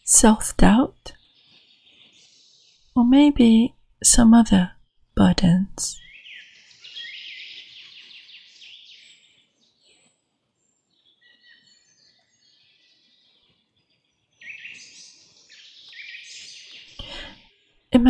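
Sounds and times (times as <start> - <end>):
small birds chirping: 1.0 - 3.0, 5.9 - 18.0.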